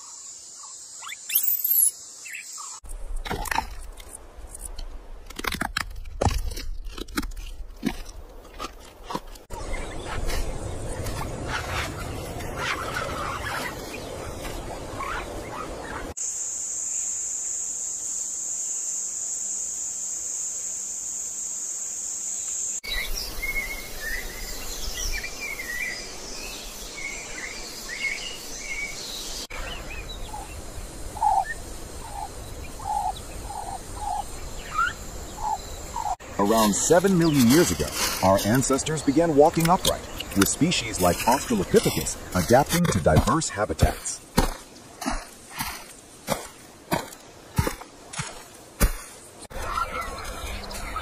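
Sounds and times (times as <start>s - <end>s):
bird chirps: 0.0s - 2.8s, 31.2s - 44.2s
high insect drone: 16.1s - 49.5s.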